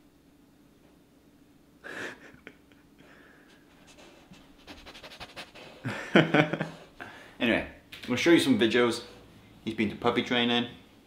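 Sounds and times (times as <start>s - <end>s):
puppy panting: 3.7s - 5.9s.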